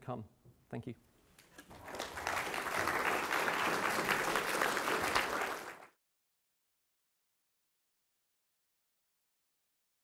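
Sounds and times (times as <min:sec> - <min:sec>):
audience applauding: 0:01.6 - 0:06.0.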